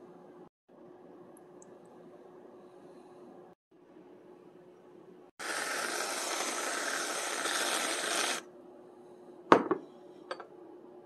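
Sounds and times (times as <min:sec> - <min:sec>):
aerosol can spraying hiss: 0:05.4 - 0:08.4.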